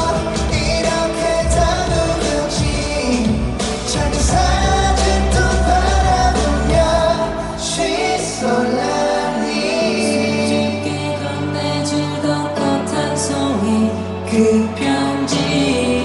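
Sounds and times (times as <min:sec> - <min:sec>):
man singing: 0:00.0 - 0:16.0
pop backing music: 0:00.0 - 0:16.0.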